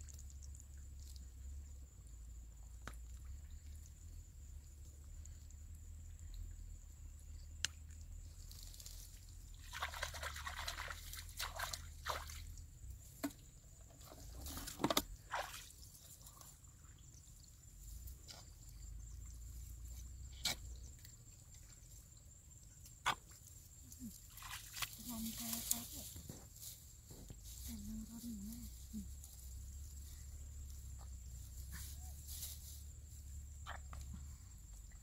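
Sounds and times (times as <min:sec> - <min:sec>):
water dripping and trickling: 0:00.0 - 0:08.2, 0:09.2 - 0:13.0
hands splashing in shallow water: 0:09.6 - 0:12.6, 0:24.3 - 0:25.1.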